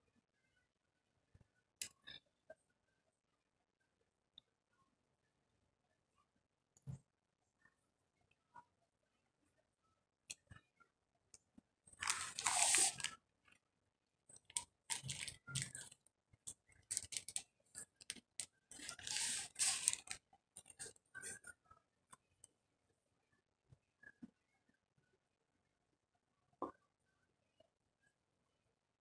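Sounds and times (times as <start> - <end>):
bag rustling: 12.0 - 13.1.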